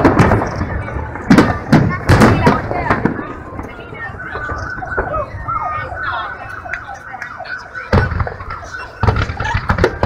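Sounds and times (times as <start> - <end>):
firework booms: 0.0 - 5.6, 7.9 - 10.0.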